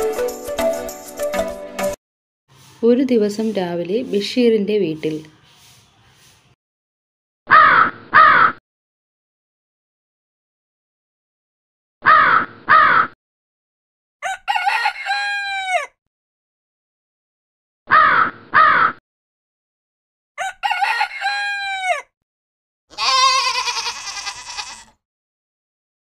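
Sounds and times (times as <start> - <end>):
rooster crowing: 14.2 - 16.0, 20.4 - 22.1, 22.9 - 24.9
crow cawing: 22.9 - 24.9
goat bleating: 22.9 - 25.0.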